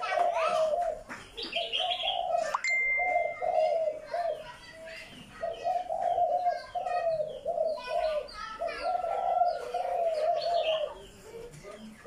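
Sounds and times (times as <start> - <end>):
birds chirping and tweeting: 0.0 - 12.0
low wavering bird call: 2.0 - 4.2.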